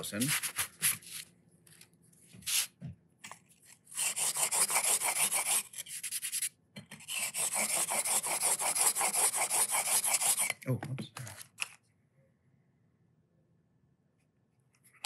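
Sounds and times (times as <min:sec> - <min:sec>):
chisel scraping on whetstone: 0:04.0 - 0:10.6.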